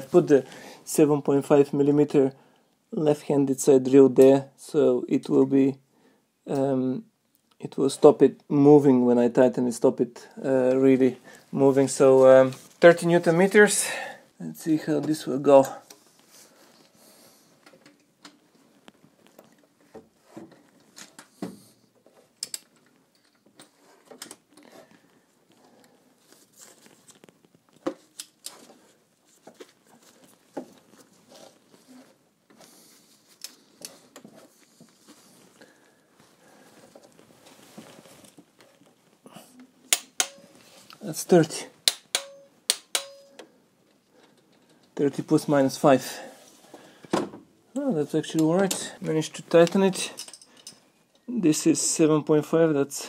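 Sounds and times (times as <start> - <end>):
metal tool clicks and taps: 39.9 - 40.4, 41.8 - 43.5.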